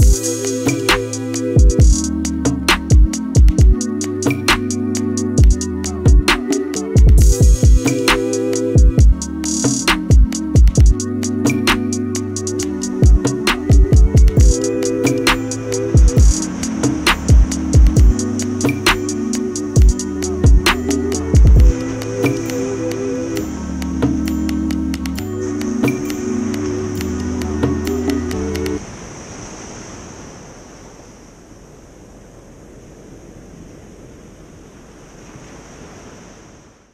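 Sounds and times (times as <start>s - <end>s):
deep kick drum: 0.0s - 0.2s, 1.6s - 2.0s, 2.7s - 3.8s, 5.4s - 6.3s, 7.0s - 7.8s, 8.8s - 9.2s, 9.9s - 11.0s, 13.0s - 14.6s, 16.0s - 16.4s, 17.3s - 18.2s, 19.8s - 20.7s, 21.4s - 21.8s
high-pitched hiss: 0.0s - 2.5s, 14.4s - 23.7s
sharp percussion hits: 0.0s - 4.8s, 5.4s - 22.6s
held synth chords: 0.0s - 28.8s
wind on microphone: 0.0s - 36.7s
small waves breaking on beach: 28.8s - 36.9s.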